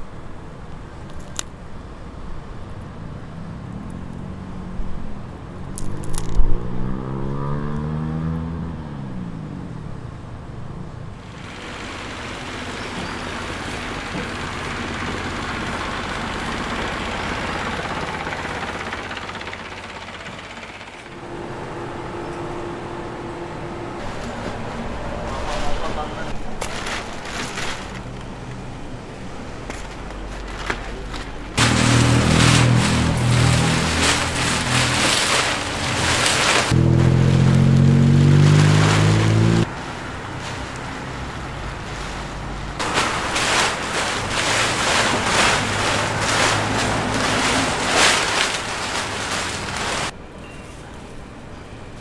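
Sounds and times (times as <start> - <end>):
motor engine running: 11.3 - 24.3, 31.6 - 39.6.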